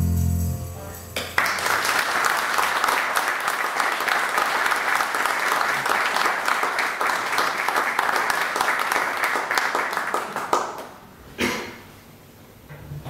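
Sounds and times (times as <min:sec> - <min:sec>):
audience applause: 0:01.2 - 0:10.9.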